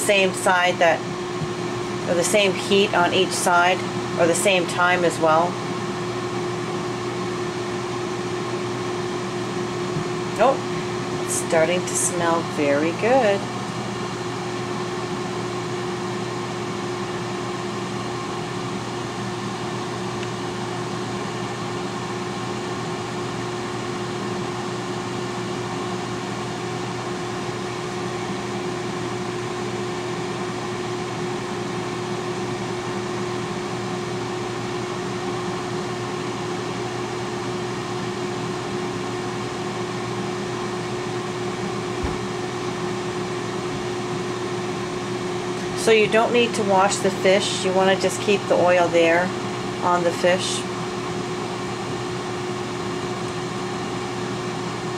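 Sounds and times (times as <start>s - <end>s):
constant hum: 0.0s - 14.5s
air fryer fan whooshing: 0.0s - 54.9s.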